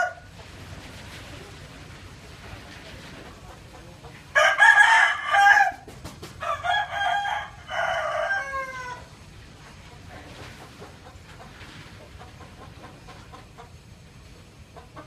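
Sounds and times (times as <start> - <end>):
rooster crowing: 0.0 - 0.3, 4.3 - 9.1.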